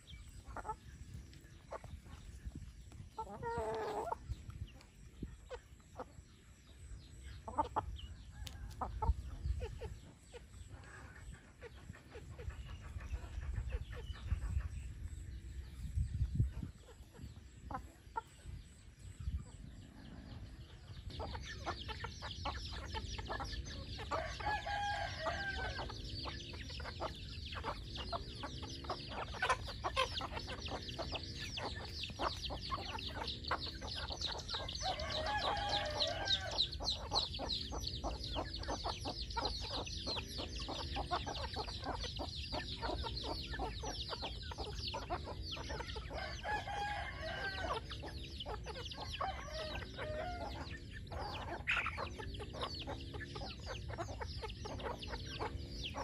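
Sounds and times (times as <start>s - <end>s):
chickens clucking: 0.0s - 56.0s
rooster crowing: 24.1s - 26.0s, 34.7s - 36.8s, 46.1s - 48.0s, 49.0s - 51.4s.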